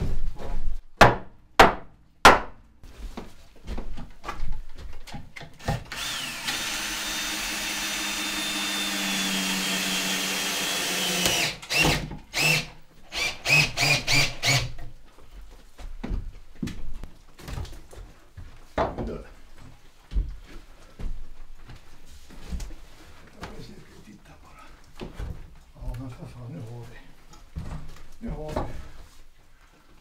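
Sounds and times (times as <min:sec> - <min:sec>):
cordless drill driving into wood: 0:05.6 - 0:14.8.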